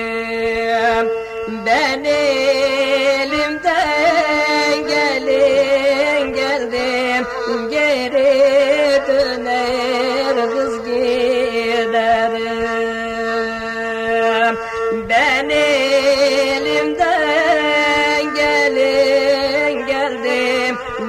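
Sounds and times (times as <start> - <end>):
wavering ornamented melody: 0.0 - 11.2
folk music drone: 0.0 - 21.0.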